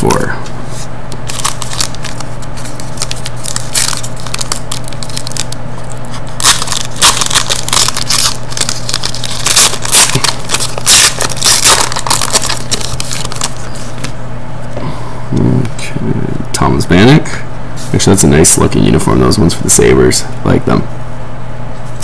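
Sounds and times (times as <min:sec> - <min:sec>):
steady low hum: 0:00.0 - 0:22.0
foil wrapper crinkling: 0:01.2 - 0:14.1.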